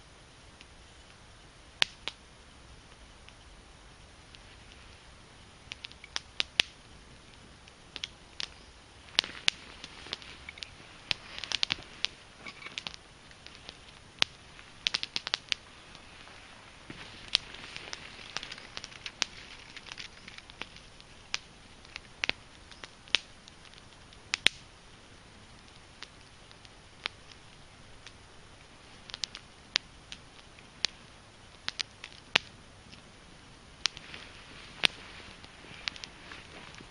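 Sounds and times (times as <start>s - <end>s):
fire crackling with pops: 0.0s - 36.9s.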